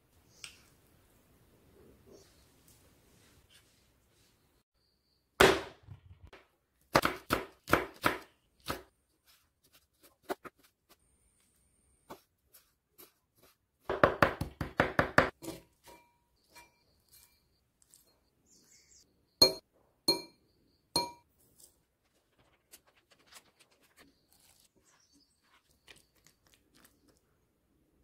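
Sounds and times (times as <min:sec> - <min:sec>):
knife chopping on wooden board: 0:06.9 - 0:08.9, 0:13.8 - 0:16.0.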